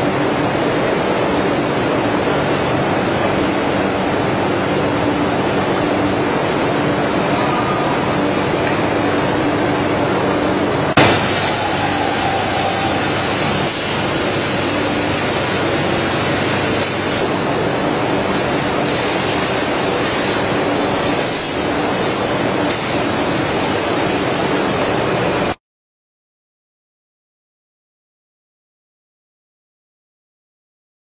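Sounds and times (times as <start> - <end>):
veneer splicer machine running: 9.4 - 25.3.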